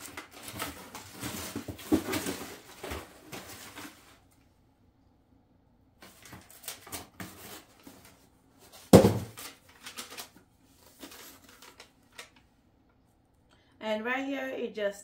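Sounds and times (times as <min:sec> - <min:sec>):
paper and cardboard rustling: 0:00.0 - 0:04.3, 0:06.0 - 0:12.4
boxes thumping: 0:00.3 - 0:03.9, 0:08.7 - 0:09.6.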